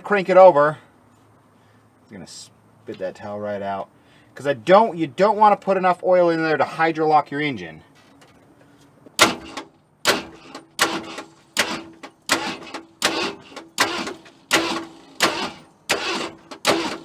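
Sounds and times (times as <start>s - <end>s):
engine cranking on starter: 9.3s - 17.0s.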